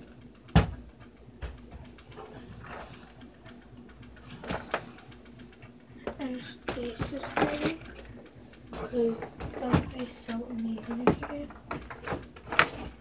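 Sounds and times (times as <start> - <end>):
faint hum: 0.0 - 13.0
objects knocking and clicking: 5.6 - 13.0.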